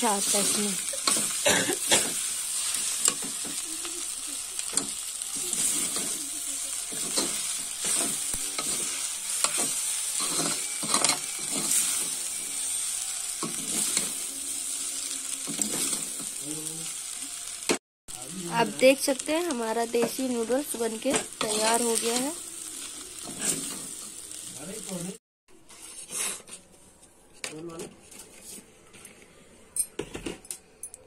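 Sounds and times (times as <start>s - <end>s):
noodles sizzling in a pan: 0.0s - 25.2s
metal spatula scraping a pan: 4.6s - 14.3s, 21.1s - 24.1s.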